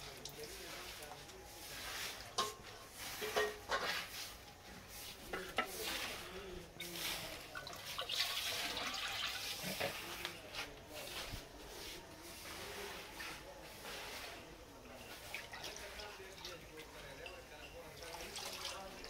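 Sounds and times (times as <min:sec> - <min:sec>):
broth splashing into pot: 0:05.8 - 0:10.0.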